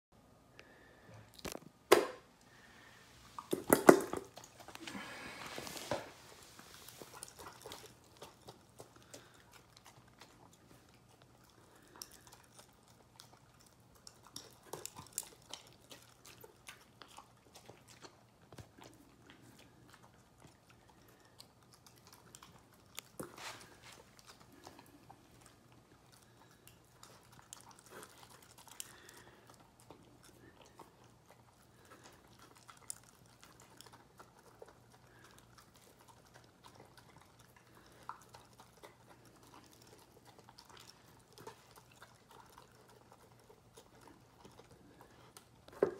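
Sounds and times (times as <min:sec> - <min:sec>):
dog crunching kibble: 0:03.4 - 0:45.9.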